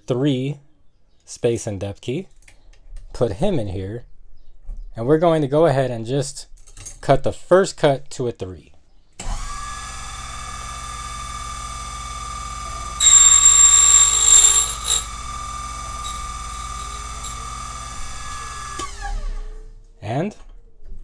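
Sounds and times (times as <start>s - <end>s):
key cutting machine whining: 10.4s - 18.9s
shrill grinding of key cutting: 12.9s - 18.7s.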